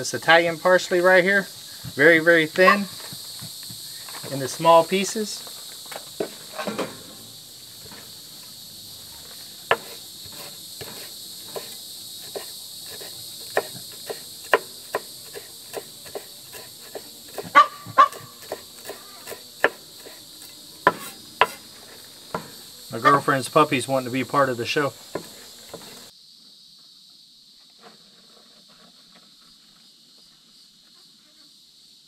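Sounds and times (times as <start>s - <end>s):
insect chorus: 0.0s - 32.0s
knife chopping on wooden board: 5.9s - 8.2s, 9.2s - 23.3s, 24.9s - 26.1s.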